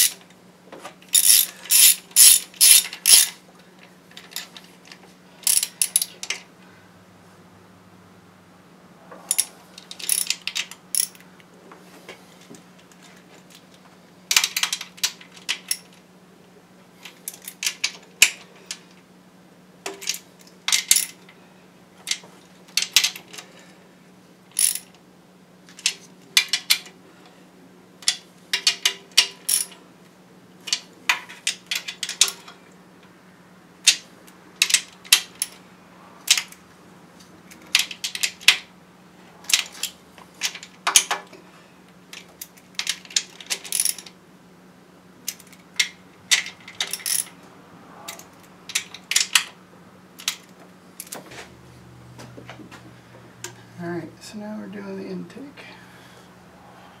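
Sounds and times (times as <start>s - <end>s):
metal tools clinking: 1.1s - 3.4s.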